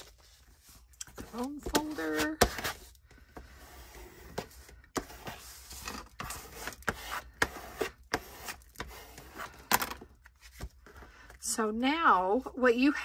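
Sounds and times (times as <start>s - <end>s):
bone folder scraping paper: 0.0s - 9.7s.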